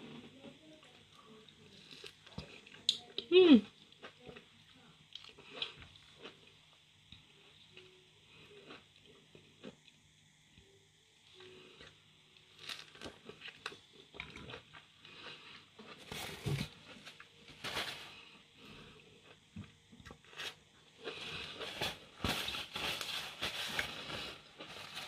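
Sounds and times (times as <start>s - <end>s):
paper towel rustling: 17.5s - 18.3s, 21.6s - 25.0s.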